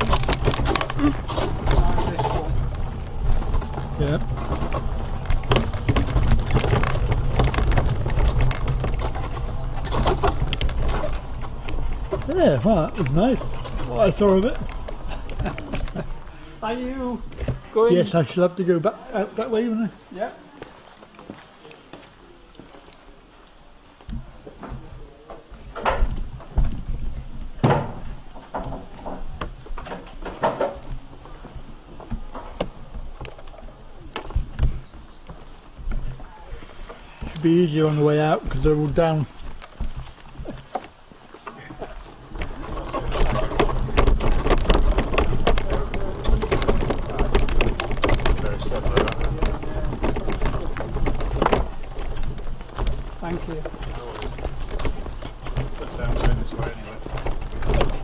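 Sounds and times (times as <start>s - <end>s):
heavy thuds: 0.0s - 16.6s
scooter rattling over flagstones: 0.0s - 20.0s, 24.1s - 58.0s.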